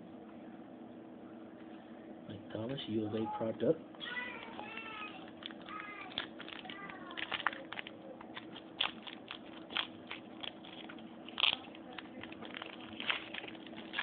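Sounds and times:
foil wrapper crinkling: 4.4s - 14.0s.

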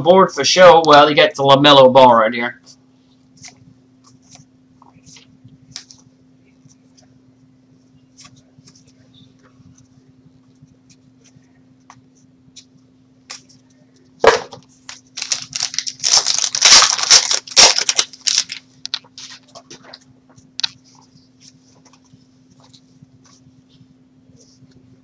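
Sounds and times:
faint low hum: 0.0s - 25.0s
wrapper tearing and crinkling: 14.9s - 19.5s.

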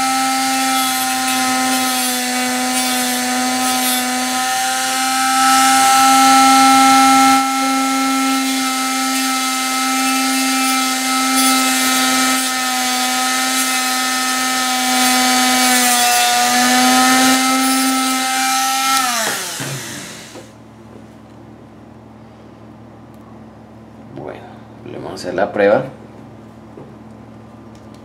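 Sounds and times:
rotary tool whining: 0.0s - 20.6s
cutting disc spinning down: 18.9s - 20.5s.

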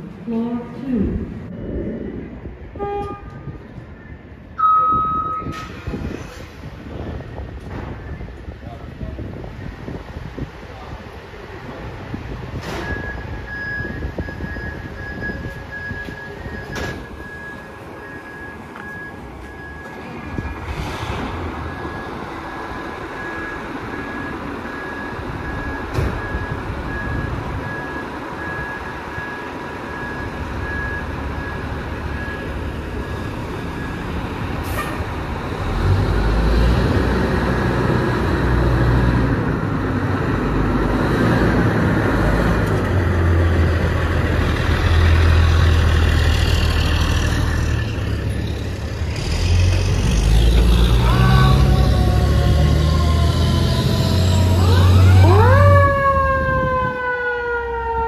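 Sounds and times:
fire engines rumbling: 0.0s - 58.0s
siren winding up: 51.4s - 58.0s.

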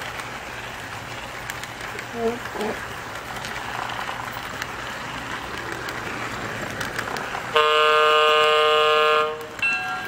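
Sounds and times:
model locomotive running noise: 0.0s - 10.0s
model locomotive horn blast: 7.5s - 10.0s.

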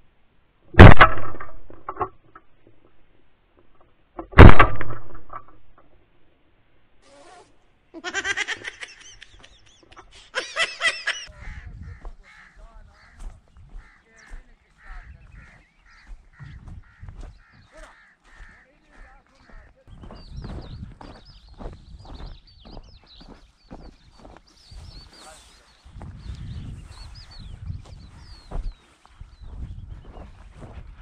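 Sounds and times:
shotgun blasts: 0.8s - 1.5s, 4.4s - 5.3s.

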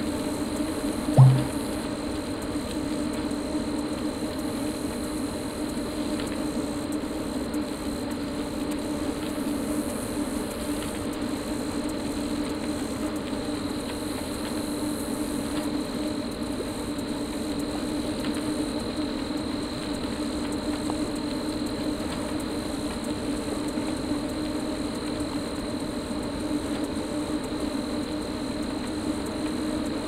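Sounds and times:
machine hum with high whine: 0.0s - 30.0s.

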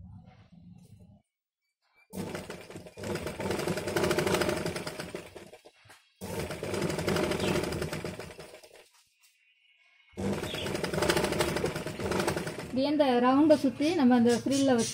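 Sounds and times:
sewing machine running: 2.2s - 8.9s, 10.2s - 13.0s.

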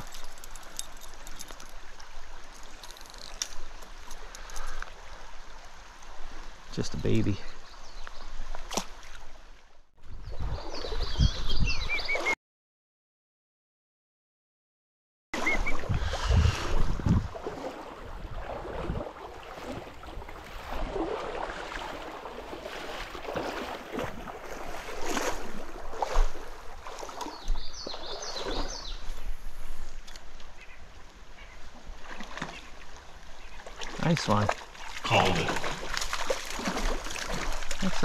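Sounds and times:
knocks and splashes: 8.5s - 9.3s, 15.4s - 28.8s, 32.0s - 32.8s, 33.6s - 38.0s
stream water rushing: 15.4s - 29.0s, 29.6s - 38.0s.

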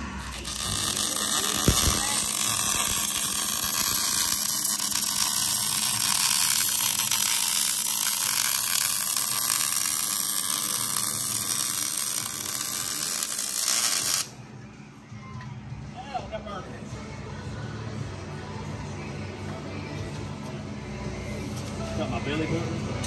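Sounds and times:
welding arc crackling and hissing: 0.0s - 14.3s.

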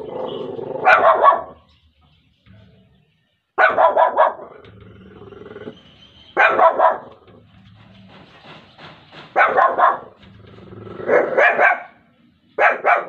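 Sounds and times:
small dog barking: 0.8s - 1.6s, 3.6s - 4.6s, 6.4s - 7.2s, 9.4s - 10.2s, 11.1s - 12.0s, 12.6s - 13.0s.

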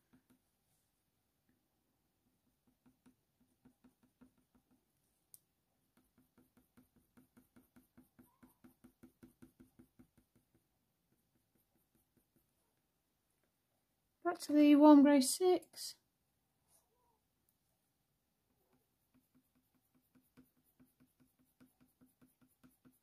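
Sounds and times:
colored pencil strokes on paper: 5.9s - 12.9s, 18.4s - 23.0s.

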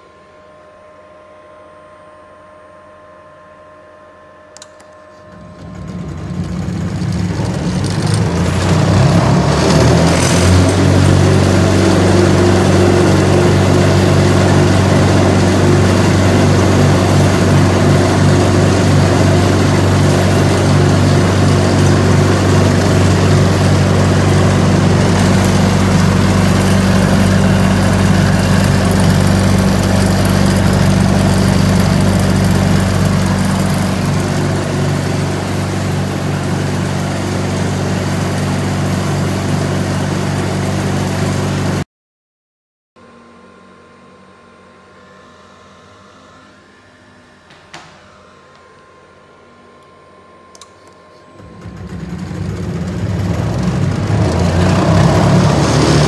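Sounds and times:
switch click: 4.6s - 5.0s
electric motor ramping up: 4.6s - 41.8s, 50.5s - 56.0s.

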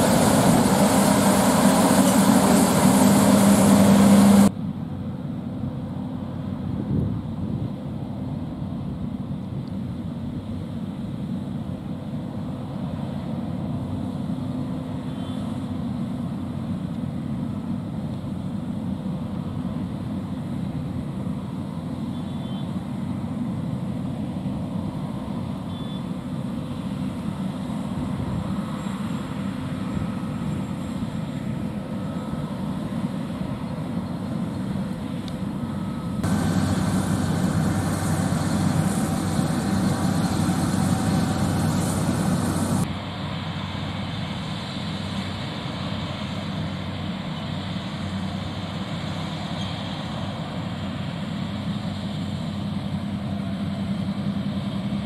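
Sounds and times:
combine harvester drone: 0.0s - 55.0s.

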